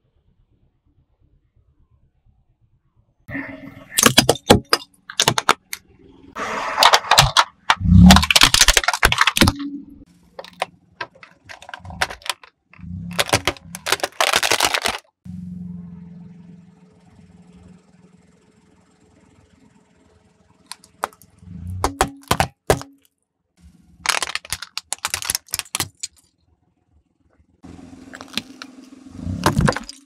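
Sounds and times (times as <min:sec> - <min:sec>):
plastic toys cracking under tyre: 0:04.0 - 0:05.8, 0:06.8 - 0:09.6, 0:10.4 - 0:15.2, 0:21.8 - 0:23.0, 0:24.0 - 0:26.3, 0:28.1 - 0:28.7, 0:29.4 - 0:30.0.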